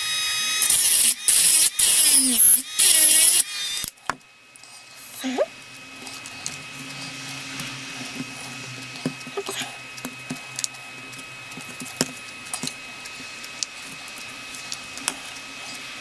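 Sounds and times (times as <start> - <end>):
steady faint hum: 3.4 - 16.0.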